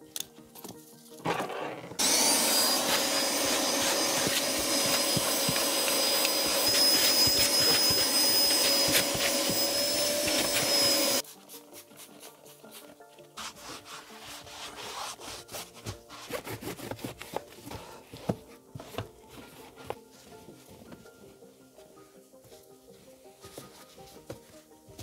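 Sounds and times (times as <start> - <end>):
vacuum cleaner whining: 1.2 - 11.2.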